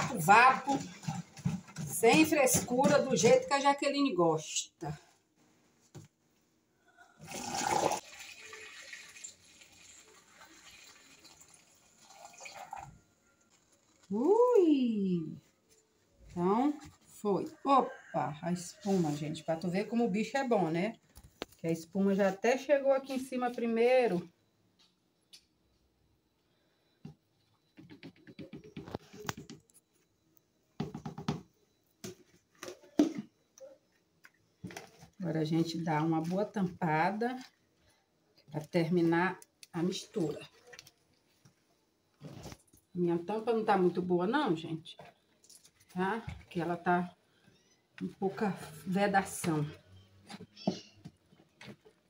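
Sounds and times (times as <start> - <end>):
liquid pouring through a funnel: 7.1 - 14.1.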